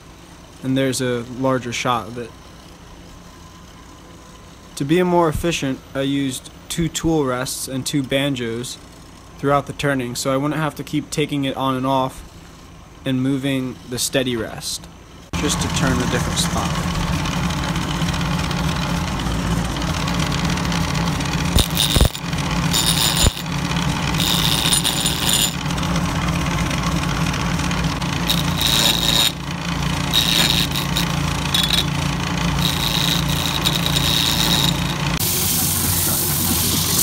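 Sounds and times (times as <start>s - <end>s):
wood lathe humming: 15.4s - 37.0s
turning tool scraping wood: 20.2s - 35.2s.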